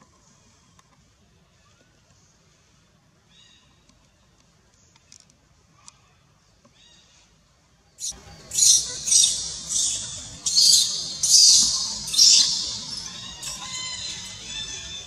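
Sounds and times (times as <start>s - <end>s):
infant monkey screaming: 8.0s - 15.0s.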